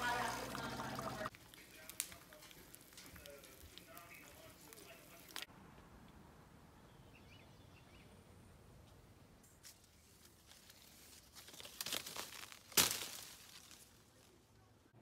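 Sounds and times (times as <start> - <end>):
leaves and twigs rustling: 1.3 - 5.5, 9.4 - 14.7
branch snapping: 1.5 - 4.1, 10.4 - 14.0.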